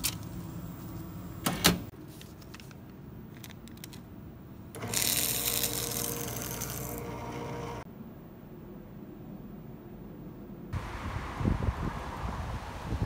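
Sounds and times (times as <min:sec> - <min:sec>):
paper shredder shredding: 0:04.8 - 0:07.8.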